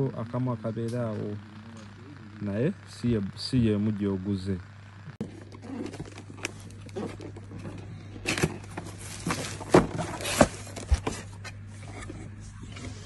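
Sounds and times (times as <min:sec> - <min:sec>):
steady low hum: 0:00.0 - 0:13.0
plastic wrapping crinkling: 0:05.2 - 0:11.4.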